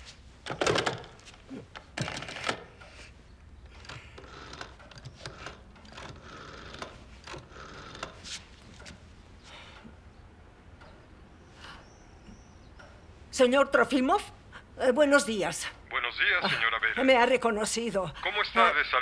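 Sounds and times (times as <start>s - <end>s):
rotary phone dial clicking: 3.7s - 9.0s.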